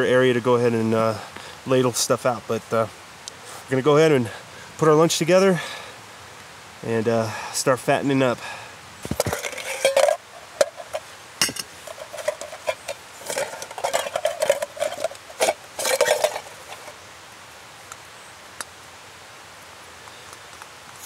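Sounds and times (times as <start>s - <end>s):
pieces knocking against metal pot: 9.0s - 16.9s
metal kettle clinking and rattling: 9.0s - 17.0s.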